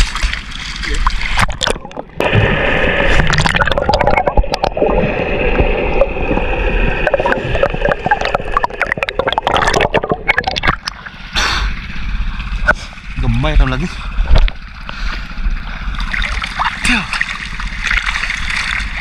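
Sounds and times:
underwater water gurgling and rushing: 0.0s - 19.0s
small clicks and knocks underwater: 14.2s - 15.3s.

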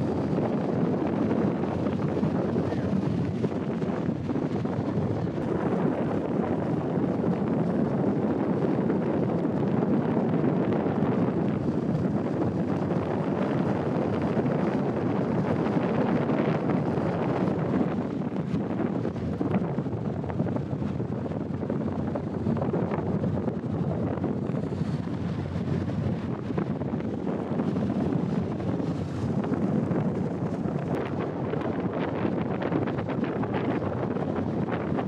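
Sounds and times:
boat running noise: 0.0s - 35.0s
wind rushing over microphone: 0.0s - 35.0s.

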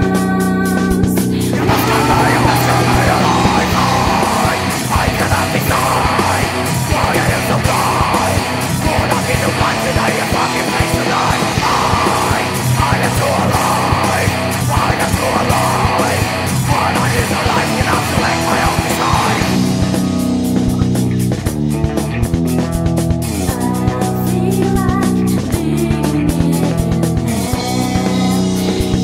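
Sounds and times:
drums driving beat: 0.0s - 29.0s
metal band music: 0.0s - 29.0s.

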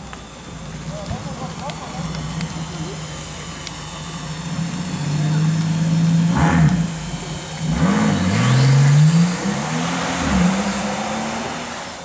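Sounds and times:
car engine accelerating through gears: 4.3s - 12.0s.

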